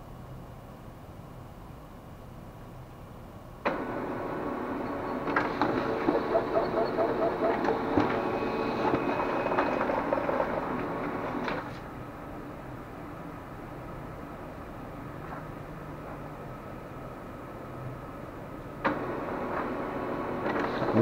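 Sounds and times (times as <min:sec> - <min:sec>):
laser printer motors humming: 0:03.7 - 0:12.6
clicks and ticks of paper feeding: 0:20.4 - 0:21.0.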